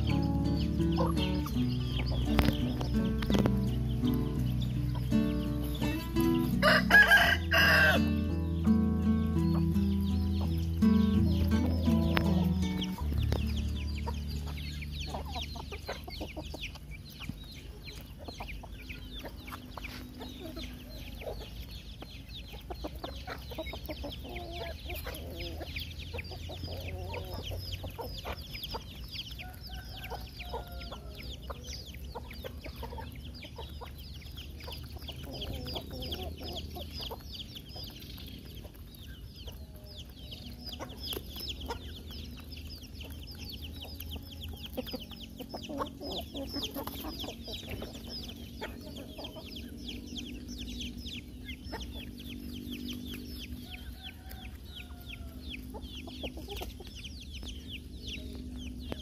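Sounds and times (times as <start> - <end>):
chickens clucking: 0.0 - 59.0
steady low hum: 41.6 - 59.0.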